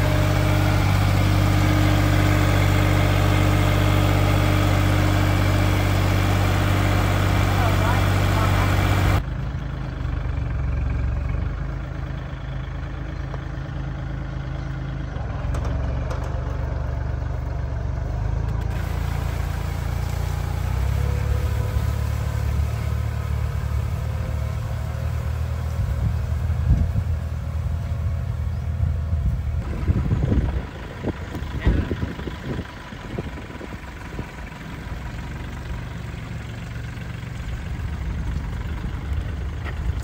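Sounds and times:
sprayer engine running: 0:00.0 - 0:09.2, 0:18.4 - 0:40.0.

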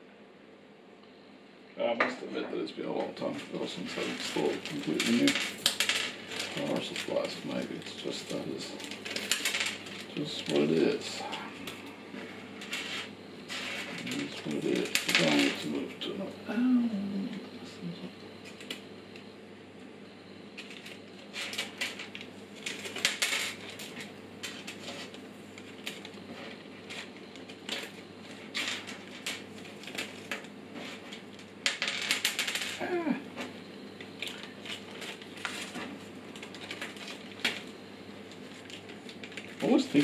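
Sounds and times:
plastic bag rustling: 0:03.2 - 0:16.2, 0:20.6 - 0:40.0.

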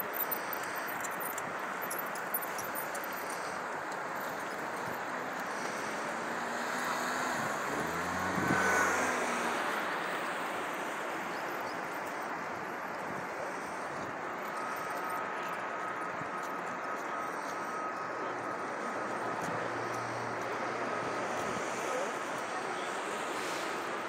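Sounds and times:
traffic hum: 0:00.0 - 0:24.0
vehicle passing close: 0:05.4 - 0:11.2.

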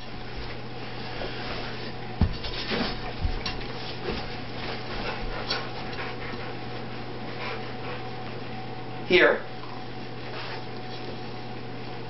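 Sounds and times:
dog thumping and shuffling on carpet: 0:00.0 - 0:08.6
steady low hum: 0:00.0 - 0:12.0.

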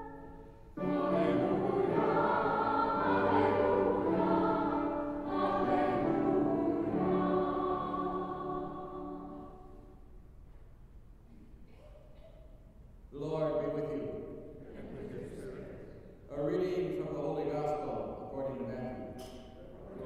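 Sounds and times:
choir singing slow sacred piece: 0:00.0 - 0:10.3.

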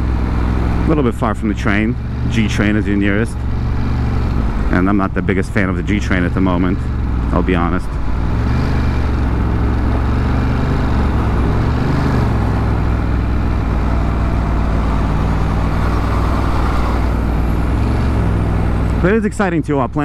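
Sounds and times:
motorcycle engine cruising: 0:00.0 - 0:20.0
road noise: 0:00.0 - 0:20.0.

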